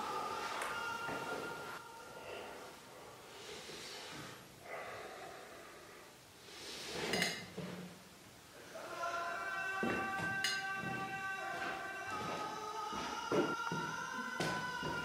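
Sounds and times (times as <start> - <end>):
sniffling breaths: 2.0 - 7.3
man crying: 8.7 - 15.0.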